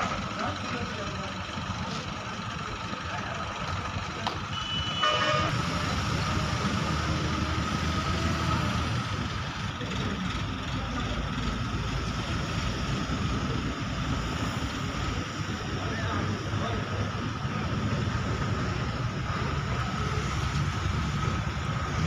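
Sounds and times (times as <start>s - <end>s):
diesel engines and traffic rumble: 0.0s - 22.0s
short vehicle horn: 4.5s - 5.6s.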